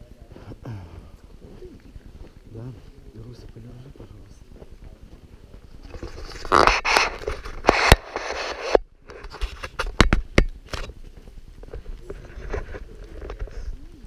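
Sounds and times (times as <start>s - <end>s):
microphone handling rubbing: 4.0s - 14.0s
sharp knocks and clicks: 9.6s - 10.9s.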